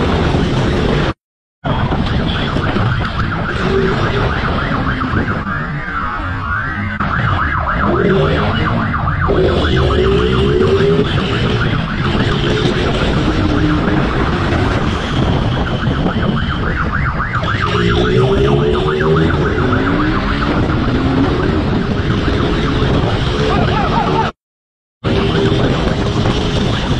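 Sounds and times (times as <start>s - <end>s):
wind and road rumble: 0.0s - 24.4s, 25.0s - 26.9s
motorcycle siren yelping: 0.5s - 24.4s
motorcycle engine revving: 17.5s - 23.6s.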